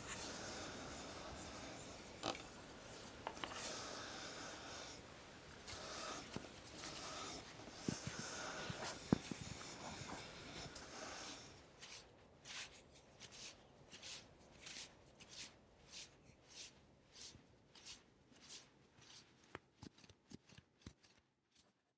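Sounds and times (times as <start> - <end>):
soft hiss: 0.0 - 15.4.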